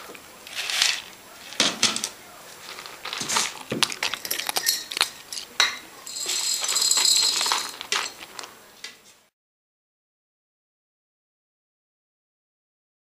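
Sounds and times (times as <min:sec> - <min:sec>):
cat crunching dry kibble: 0:00.0 - 0:08.6
kibble rattling in plastic bowl: 0:00.0 - 0:08.6.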